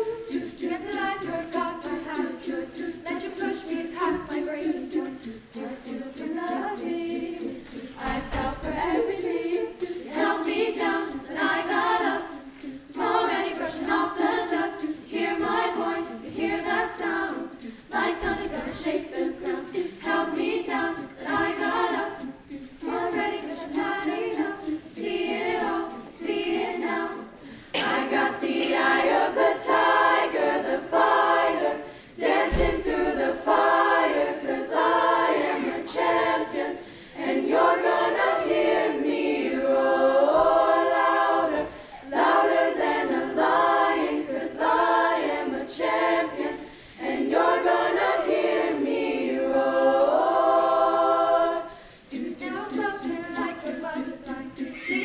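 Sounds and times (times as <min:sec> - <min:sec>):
women's choir singing a cappella: 0:00.0 - 0:55.0.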